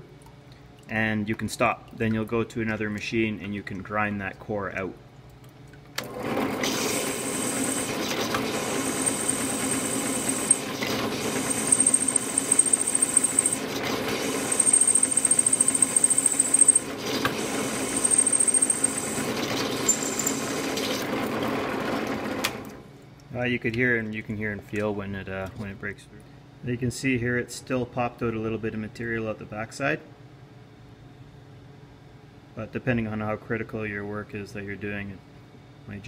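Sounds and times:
drill press running: 6.0 - 22.9
diamond core bit grinding squeal: 8.8 - 10.8, 11.4 - 13.6, 14.4 - 16.9, 17.8 - 20.6.

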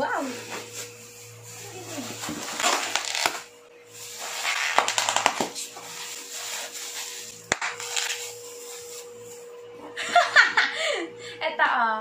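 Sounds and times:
bubble wrap crackling and popping: 0.6 - 9.1.

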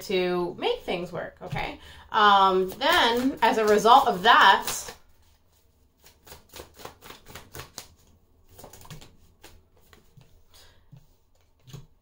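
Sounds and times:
cards shuffling and flicking: 2.6 - 5.4, 6.0 - 10.6.

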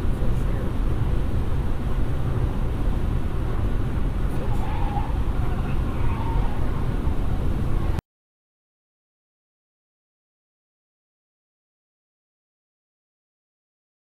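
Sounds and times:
road and wind rumble in car: 0.0 - 8.0.

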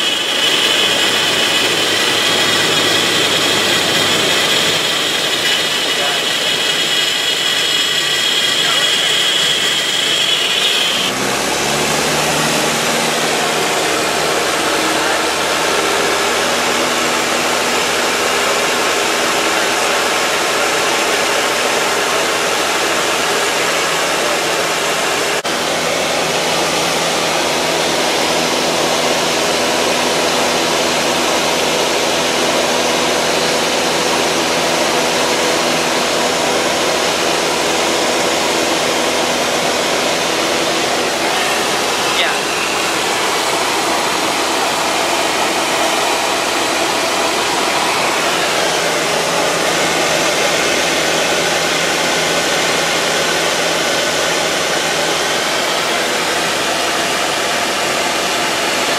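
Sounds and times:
airplane engine and propeller drone: 0.0 - 58.9.

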